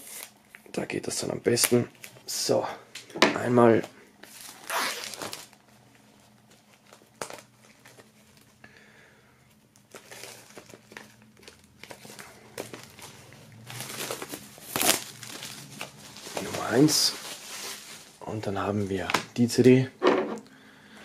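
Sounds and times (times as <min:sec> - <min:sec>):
plastic wrap crinkling: 0:03.7 - 0:08.6, 0:09.6 - 0:19.2.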